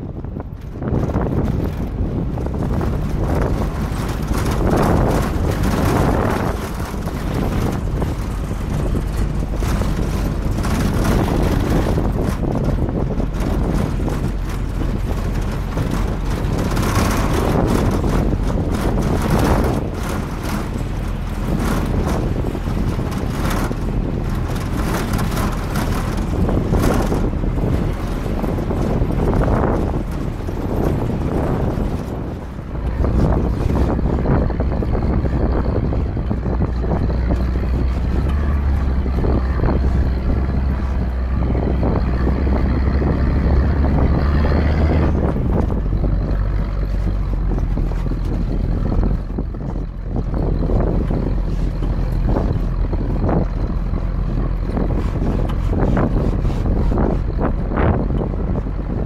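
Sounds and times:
truck engine and tyre rumble: 0.0 - 59.0
wind buffeting microphone: 0.0 - 59.0.

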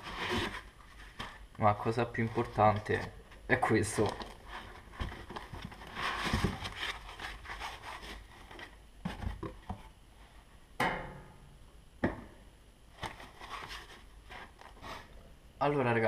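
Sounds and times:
cardboard and foam rustling: 0.0 - 10.6, 12.9 - 15.1.

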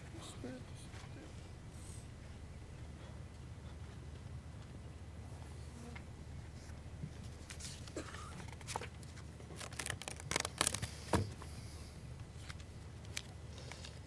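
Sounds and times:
low steady hum: 0.0 - 14.0
papers rustling: 7.2 - 11.4.

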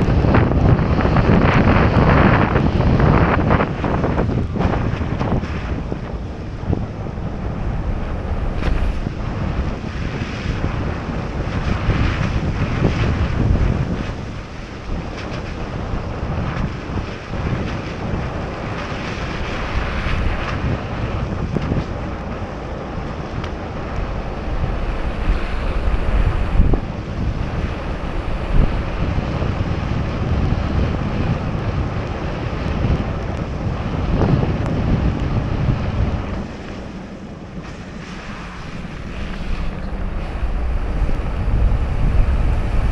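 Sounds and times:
wind buffeting microphone: 0.0 - 42.9
tyres hissing on wet road: 37.7 - 42.9.

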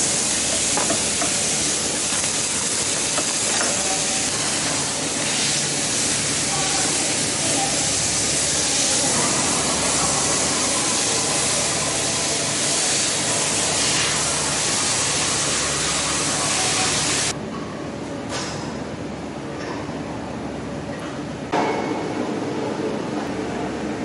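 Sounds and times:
loud hissing noise: 0.0 - 17.4.

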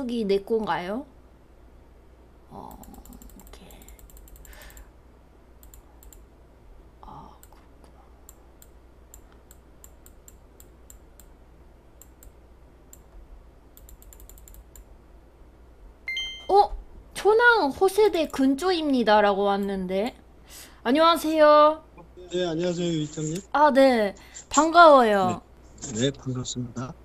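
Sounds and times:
computer keyboard typing: 2.6 - 4.9, 13.8 - 14.9.

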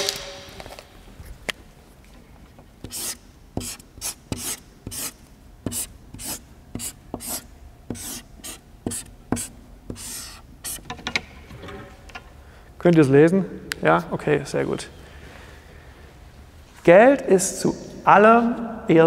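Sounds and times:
pen scratching while writing: 2.8 - 10.8.

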